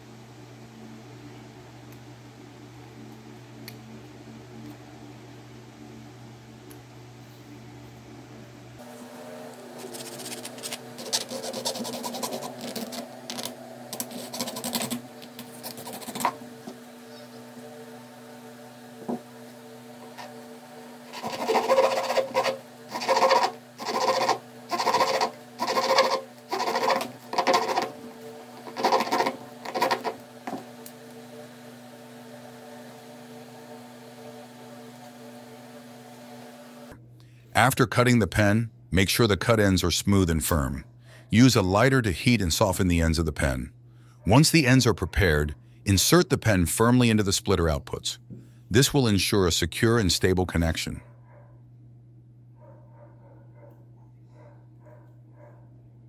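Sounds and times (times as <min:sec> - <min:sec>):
steady low hum: 0:00.0 - 0:56.0
light scraping and handling: 0:09.6 - 0:16.8
blade rasping through plastic: 0:09.8 - 0:16.4, 0:21.0 - 0:28.0, 0:28.6 - 0:30.6.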